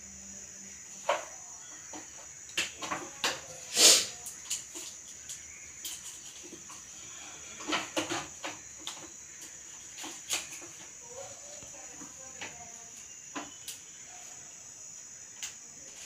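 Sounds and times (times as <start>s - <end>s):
faint high hiss: 0.0s - 8.2s.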